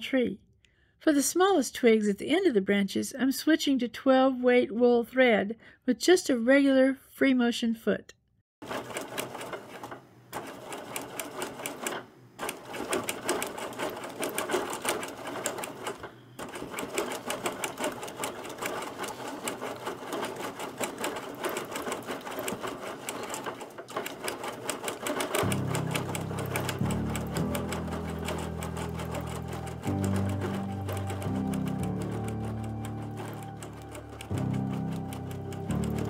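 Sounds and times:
quilting machine stitching: 0:08.6 - 0:36.0.

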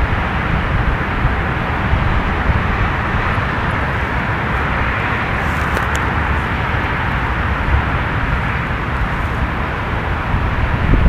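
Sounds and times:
gusty wind buffeting microphone: 0:00.0 - 0:11.0.

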